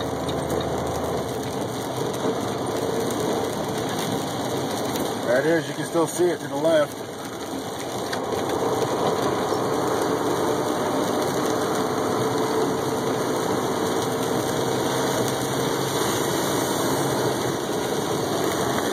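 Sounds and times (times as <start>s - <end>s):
diesel engine in truck cab: 0.0s - 18.9s
tyres on wet road: 0.0s - 18.9s.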